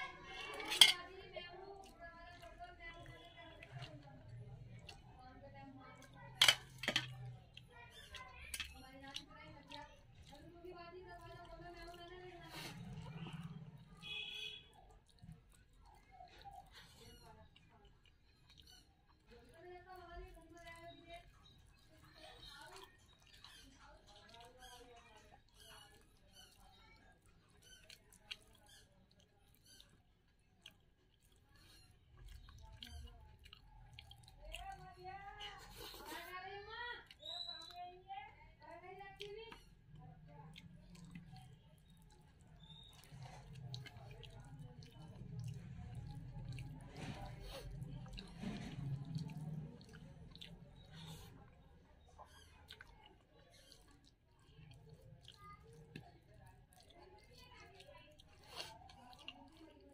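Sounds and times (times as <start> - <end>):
fingers squishing food on plate: 0.0 - 59.9
wet chewing: 0.0 - 59.9
small clicks and smacks: 6.1 - 10.5.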